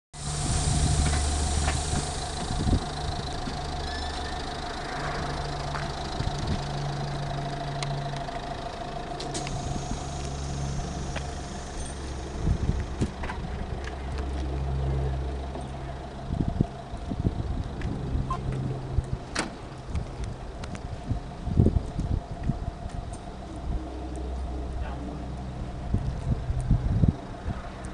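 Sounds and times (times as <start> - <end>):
hiss: 0.2 - 3.2, 9.2 - 13.0
diesel engine idling: 0.2 - 27.9
steady whine: 0.2 - 27.9.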